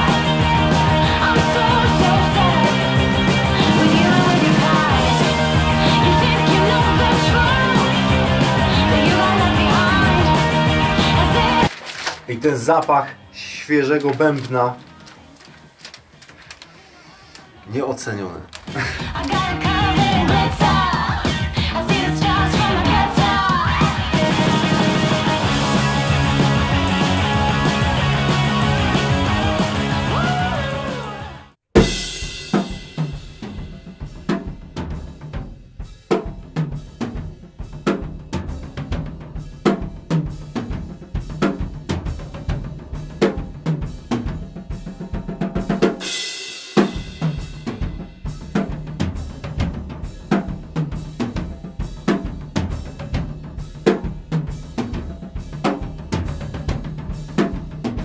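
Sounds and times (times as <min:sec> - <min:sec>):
rock backing music: 0:00.0 - 0:16.5, 0:18.6 - 0:58.0
drum kit groove: 0:00.0 - 0:58.0.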